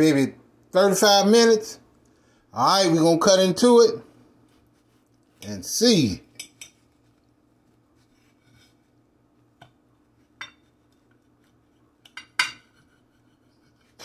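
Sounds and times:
faint steady hum: 0:00.0 - 0:14.0
knife clinking on ceramic plate: 0:06.4 - 0:06.8, 0:10.4 - 0:10.7, 0:12.1 - 0:12.8.

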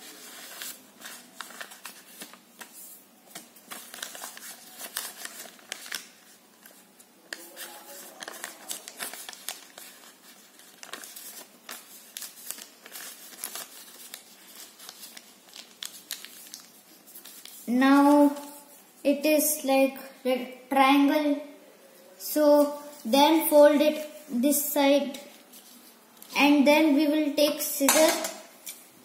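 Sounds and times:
paper crinkling and rustling: 0:00.0 - 0:18.8.

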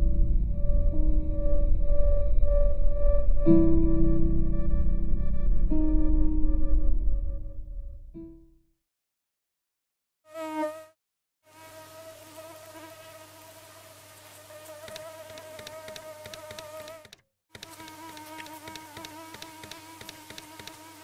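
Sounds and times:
mosquito buzzing whine: 0:10.3 - 0:21.0.

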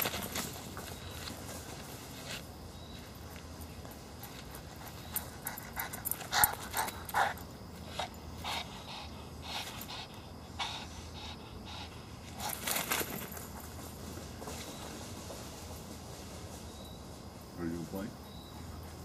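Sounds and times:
rustling in grass and leaves: 0:00.0 - 0:10.2, 0:12.1 - 0:19.0
dog panting: 0:04.0 - 0:12.9.

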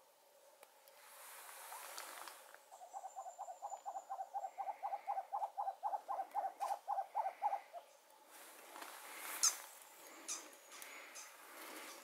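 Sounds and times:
small owl hooting: 0:02.7 - 0:08.0.

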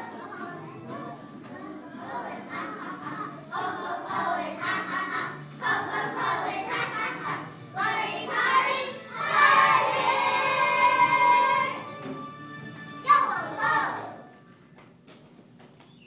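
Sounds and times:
children singing: 0:00.0 - 0:12.0.

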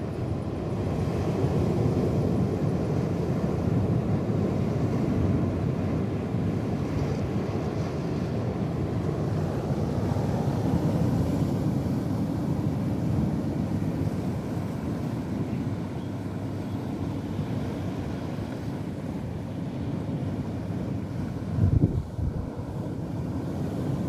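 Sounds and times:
waves and surf washing: 0:00.0 - 0:24.0
wind buffeting microphone: 0:20.0 - 0:24.0.

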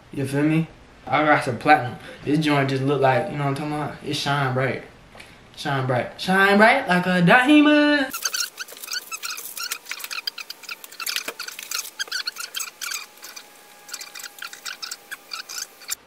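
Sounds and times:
plastic wrapping crinkling: 0:08.1 - 0:16.0.

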